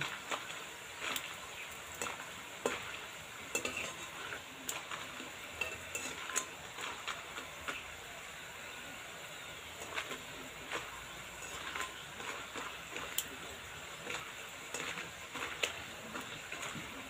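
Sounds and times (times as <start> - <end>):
dough sizzling in oil: 0.0 - 17.0
metal skimmer clinking: 1.9 - 7.1.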